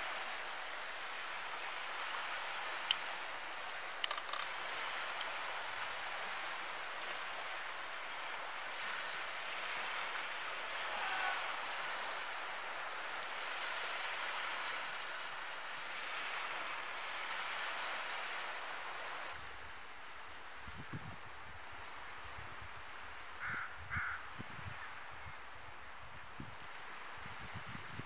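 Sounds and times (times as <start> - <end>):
faint high ticks: 2.8 - 3.1, 4.0 - 5.4.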